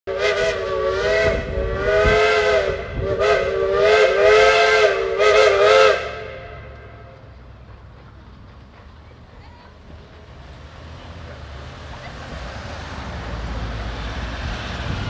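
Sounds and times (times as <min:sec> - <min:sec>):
steam whistle chord blasts: 0:00.1 - 0:07.2.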